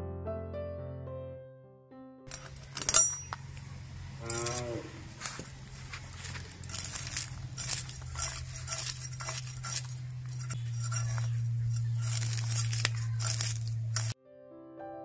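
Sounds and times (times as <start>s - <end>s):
soft electric piano music: 0.0s - 2.2s, 14.2s - 15.0s
knife scraping fish scales: 2.3s - 14.2s
steady low hum: 2.3s - 14.2s.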